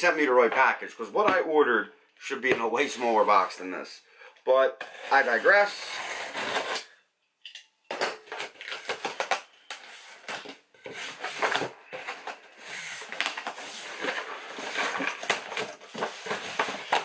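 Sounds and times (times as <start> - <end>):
cardboard flaps scraping and rustling: 9.8 - 17.0.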